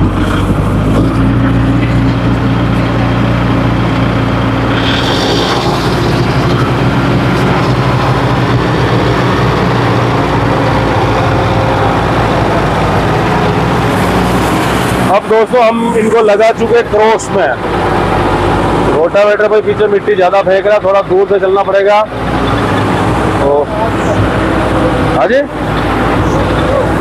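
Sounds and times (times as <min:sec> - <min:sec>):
tractor diesel engine running: 0:00.0 - 0:27.0.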